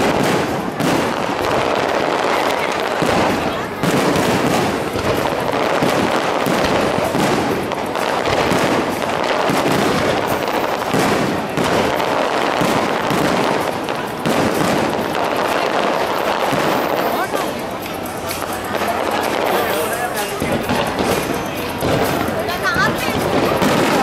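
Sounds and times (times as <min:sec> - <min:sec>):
firework crackle: 0:00.0 - 0:24.0
fireworks bursting: 0:00.0 - 0:24.0.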